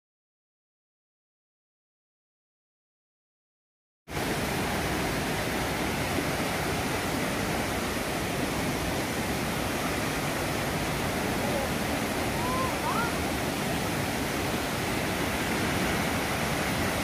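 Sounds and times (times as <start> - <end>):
stream rushing over rocks: 4.1 - 17.0.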